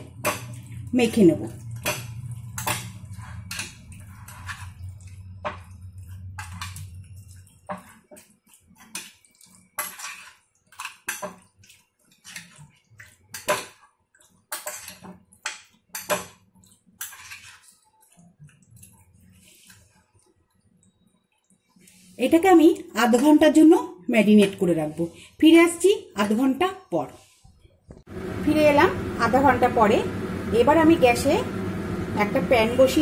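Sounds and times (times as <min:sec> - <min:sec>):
wet squelches of marinating meat: 0:03.1 - 0:14.5
low hum: 0:28.1 - 0:33.0.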